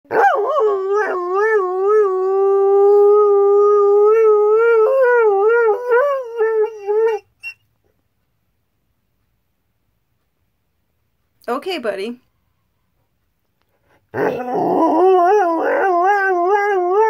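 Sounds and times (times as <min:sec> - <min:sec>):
dog howling: 0:00.1 - 0:07.2, 0:14.2 - 0:17.0.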